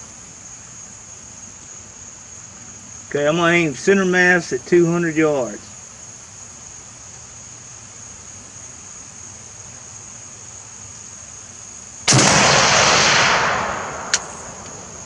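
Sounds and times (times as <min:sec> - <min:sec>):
crickets trilling: 0:00.0 - 0:15.0
rifle shot: 0:12.1 - 0:15.0.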